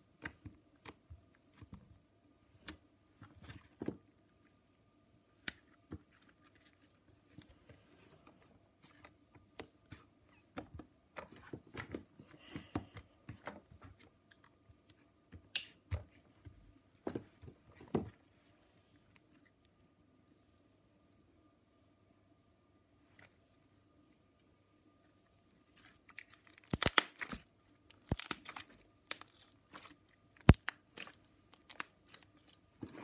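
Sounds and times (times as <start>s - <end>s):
slime kneaded by hand: 25.6s - 33.0s
sticky clicks and pops: 26.6s - 27.2s.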